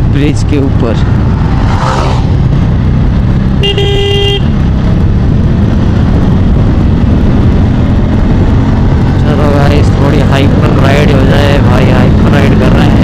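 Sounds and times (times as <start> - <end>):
motorcycle riding at speed: 0.0 - 13.0
wind rumble on microphone: 0.0 - 13.0
vehicle horn: 3.6 - 4.6.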